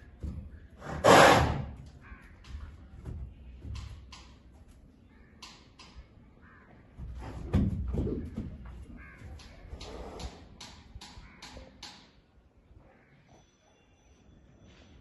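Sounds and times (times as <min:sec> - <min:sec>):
hoof thumps: 0:00.0 - 0:04.8, 0:06.9 - 0:09.8
hooves on concrete floor: 0:00.0 - 0:11.9.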